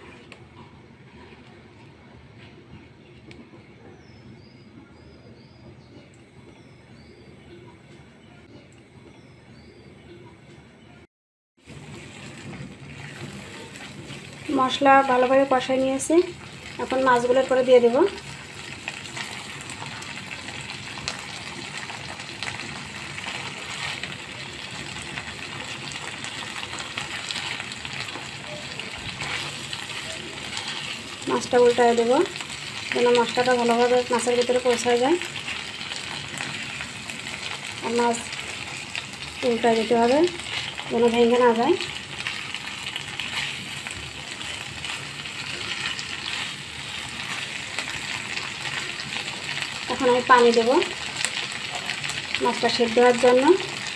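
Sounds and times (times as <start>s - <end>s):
paste sizzling in a frying pan: 11.6s - 53.9s.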